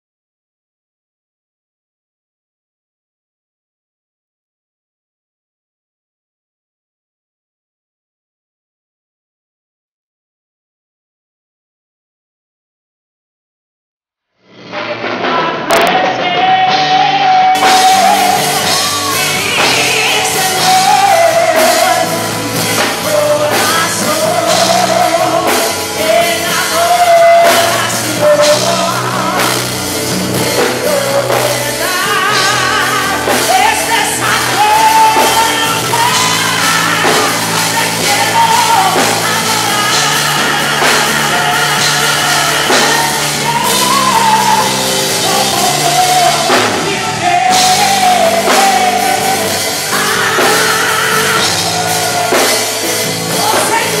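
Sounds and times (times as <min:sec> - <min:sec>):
live band with drums: 0:14.7 - 0:54.0
woman singing into a microphone: 0:15.2 - 0:54.0.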